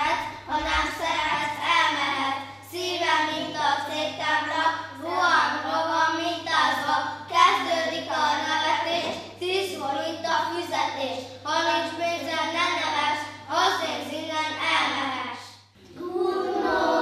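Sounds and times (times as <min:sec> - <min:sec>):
children singing together: 0:15.8 - 0:17.0.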